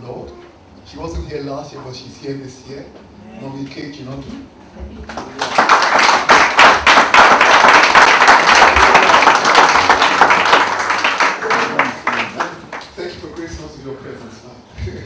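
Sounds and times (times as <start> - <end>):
audience applauding: 5.1 - 13.2.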